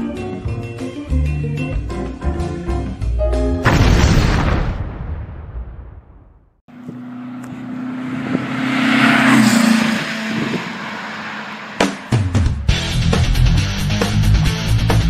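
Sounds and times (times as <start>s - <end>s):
vehicle engine passing by: 6.7s - 13.3s
rock music with strummed guitar: 12.7s - 15.0s.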